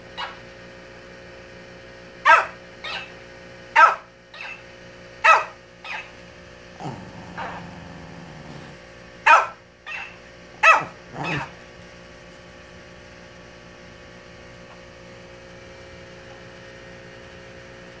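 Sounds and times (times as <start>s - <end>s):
dog barking: 0.2s - 0.4s, 2.2s - 3.1s, 3.8s - 4.6s, 5.2s - 6.1s, 9.2s - 11.6s
toy repeating bark: 2.3s - 3.1s, 3.8s - 4.6s, 5.2s - 6.1s, 9.3s - 11.5s.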